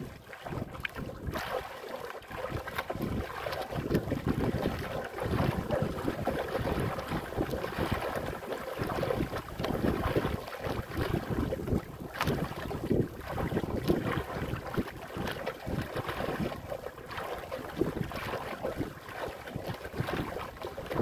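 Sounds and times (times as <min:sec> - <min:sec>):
wind buffeting microphone: 0:00.0 - 0:01.6, 0:02.3 - 0:21.0
waves splashing against boat hull: 0:00.0 - 0:21.0.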